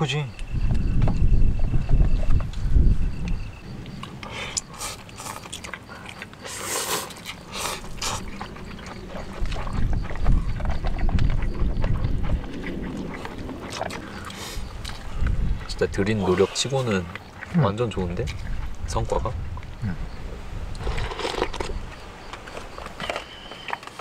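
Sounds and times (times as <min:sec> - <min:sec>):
noodles slurped and chewed: 0:03.9 - 0:18.8, 0:20.7 - 0:24.0
low rumble: 0:07.4 - 0:16.2.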